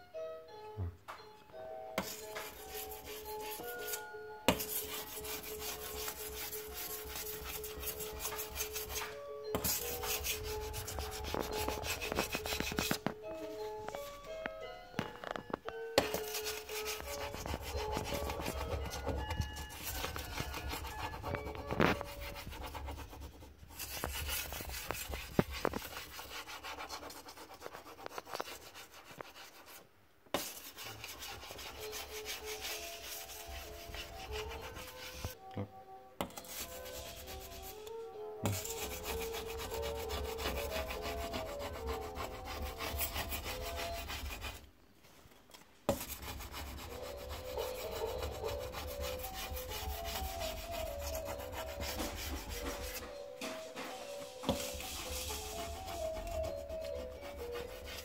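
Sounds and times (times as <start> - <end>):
faint background music: 0.0 - 58.0
razor scraper scraping glass: 2.0 - 13.0, 16.0 - 22.7, 38.4 - 44.6, 45.9 - 53.0, 54.5 - 58.0.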